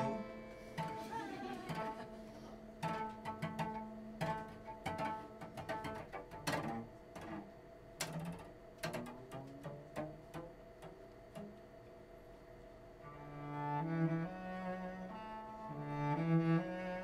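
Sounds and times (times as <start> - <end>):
steady held note: 0.0 - 2.9
cello plucked notes: 0.0 - 11.8, 13.0 - 17.0.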